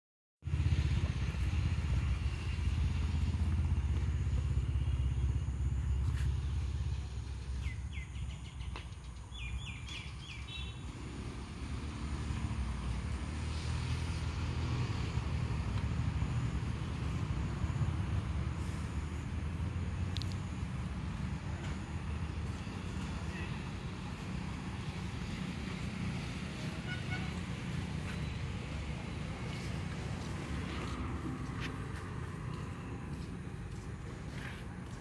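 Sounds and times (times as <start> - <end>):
low outdoor rumble: 0.4 - 9.8.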